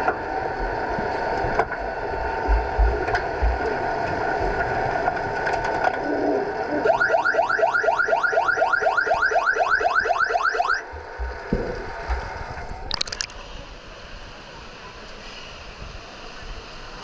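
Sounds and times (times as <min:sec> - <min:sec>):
underwater siren chirps: 0:06.8 - 0:10.9
water splash: 0:12.8 - 0:13.4.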